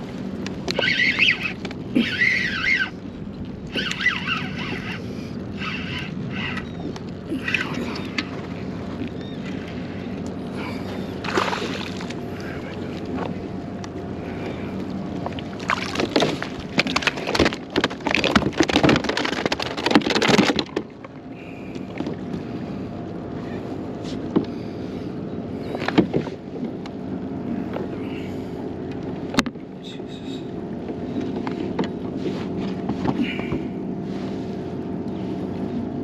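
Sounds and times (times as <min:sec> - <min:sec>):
low hum: 0:00.0 - 0:36.0
water splashing and knocks: 0:11.2 - 0:12.2, 0:15.2 - 0:21.1.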